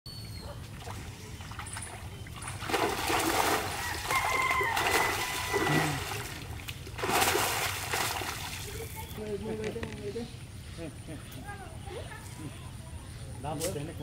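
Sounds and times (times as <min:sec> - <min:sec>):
water splashing from thrashing fish: 0:00.8 - 0:08.9.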